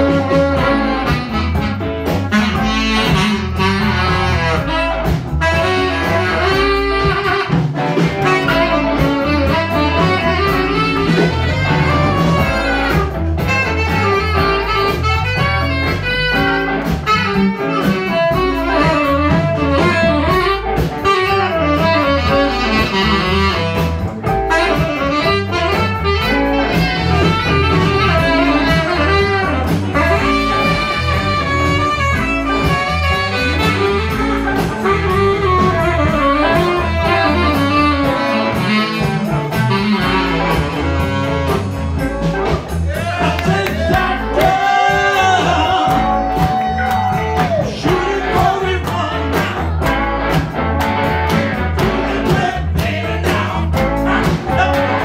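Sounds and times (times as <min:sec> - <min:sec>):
live blues band: 0:00.0 - 0:55.0
saxophone playing: 0:00.0 - 0:55.0.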